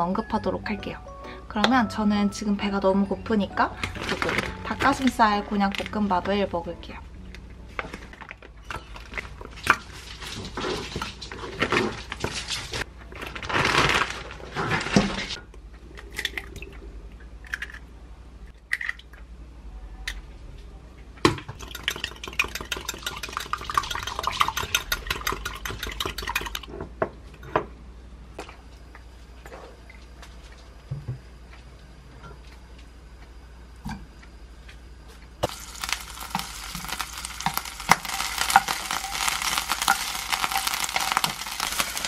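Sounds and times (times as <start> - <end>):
egg cracking: 17.4 - 17.9, 18.5 - 19.2, 21.5 - 26.7, 35.4 - 42.0
whisk clinking against glass: 21.6 - 26.7.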